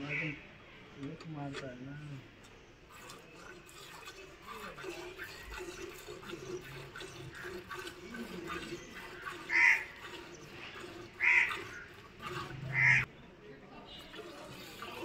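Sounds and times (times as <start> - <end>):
milk squirting into a pail: 2.5 - 13.1, 13.9 - 15.0
loud animal calls: 3.0 - 13.1.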